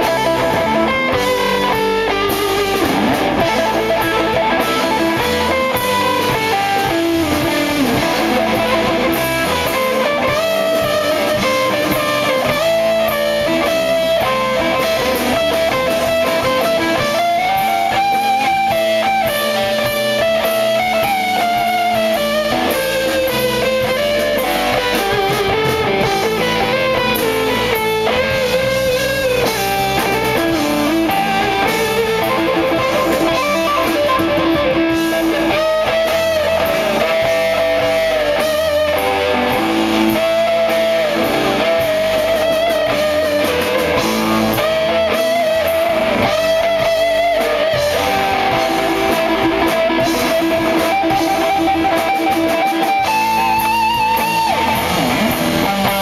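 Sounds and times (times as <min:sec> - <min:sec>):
drums: 0:00.0 - 0:56.0
electric guitar solo: 0:00.0 - 0:56.0.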